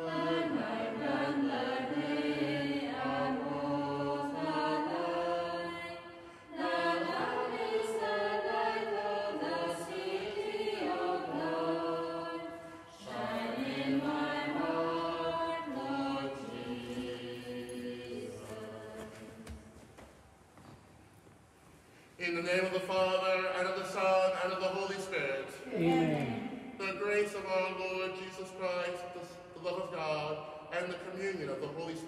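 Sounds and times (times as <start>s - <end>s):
women singing a hymn: 0.0s - 19.8s.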